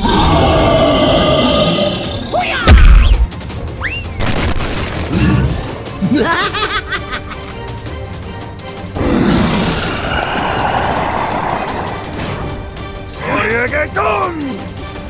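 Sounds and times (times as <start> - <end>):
background music: 0.0 - 15.0
whistling glide: 3.8 - 4.2
monster screech: 9.2 - 12.1
squiggly rising sounds: 9.8 - 12.4.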